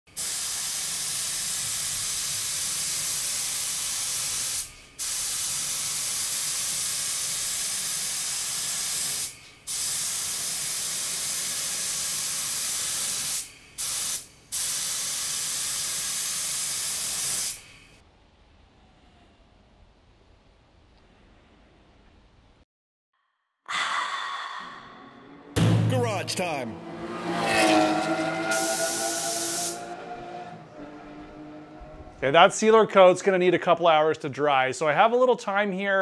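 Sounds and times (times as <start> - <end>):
paint spray gun hissing: 0.2 - 18.0, 28.5 - 29.8.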